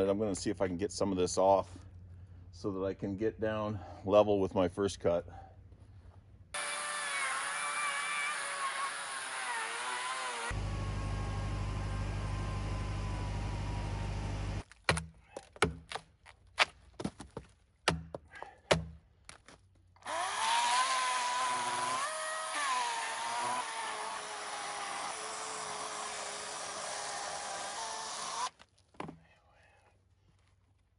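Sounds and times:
electric chainsaw cutting log: 6.6 - 14.6, 20.0 - 28.6
hatchet chopping bark: 14.8 - 16.1, 17.8 - 19.0.

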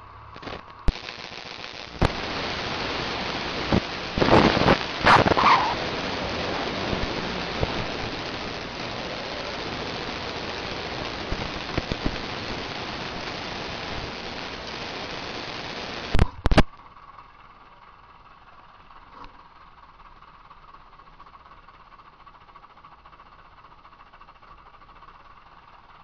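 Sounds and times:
faint steady hum: 0.0 - 26.0
sharp clicks: 16.1 - 16.7.

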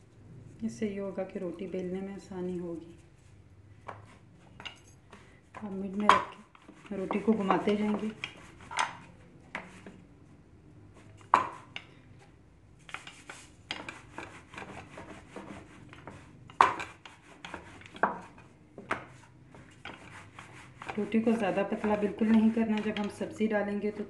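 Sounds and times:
rolling pin rubbing dough: 5.5 - 10.0, 12.8 - 23.3.

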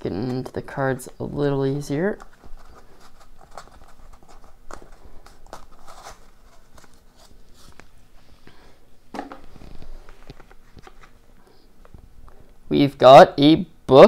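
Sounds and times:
hands handling packaging: 1.9 - 8.0, 9.1 - 12.0.

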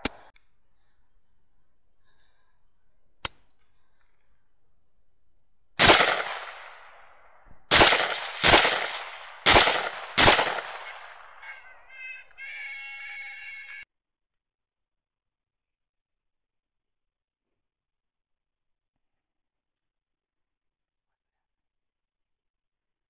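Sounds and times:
rifle shots echoing: 5.8 - 11.7
hogs squealing: 10.8 - 13.8.

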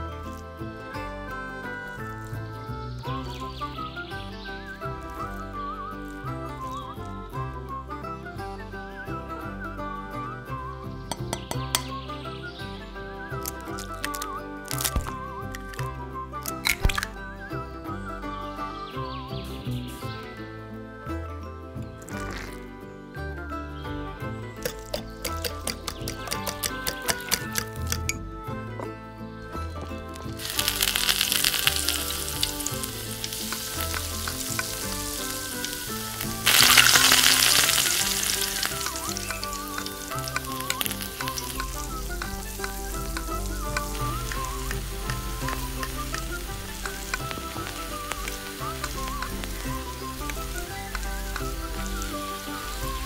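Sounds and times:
food sizzling in hot oil: 30.4 - 53.0.

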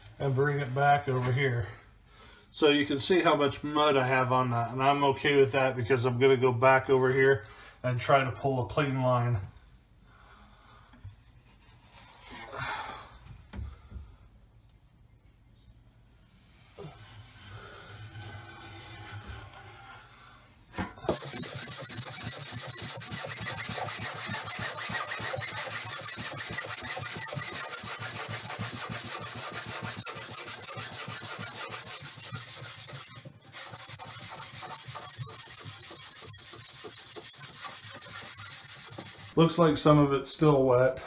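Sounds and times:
hand sander rubbing drywall: 16.4 - 20.3, 21.1 - 39.4.

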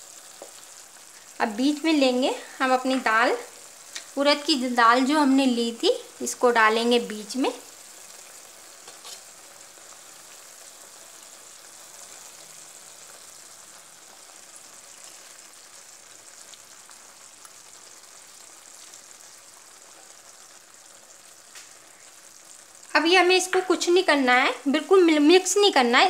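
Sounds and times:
greens sizzling in a pan: 0.0 - 26.0
faint ticks of lentils: 3.7 - 4.2, 7.6 - 22.9.

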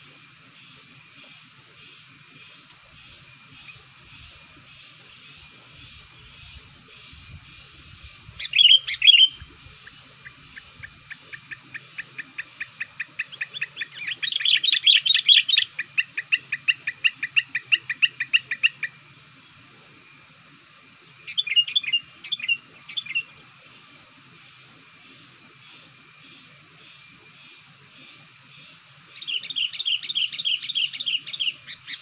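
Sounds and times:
bird chirping: 1.6 - 19.0, 21.2 - 23.4, 28.0 - 32.0.

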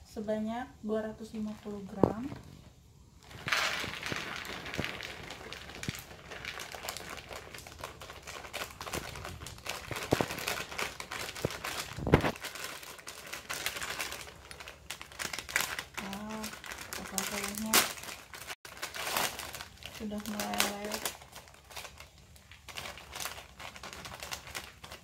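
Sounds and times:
plastic packet crinkling: 3.2 - 25.0.

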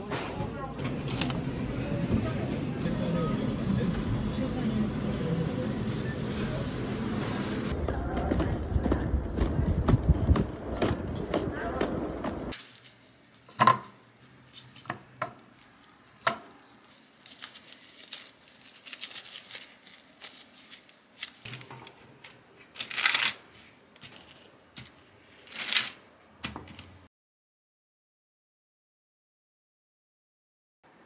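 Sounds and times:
rustling: 9.4 - 27.1
plastic gloves crinkling: 12.5 - 27.0.

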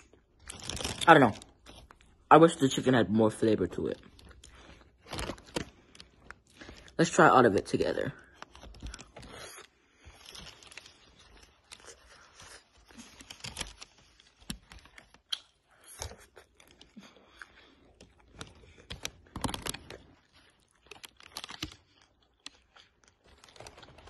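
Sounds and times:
plastic crinkling: 0.0 - 24.0
chewing crispy food: 7.8 - 24.0.

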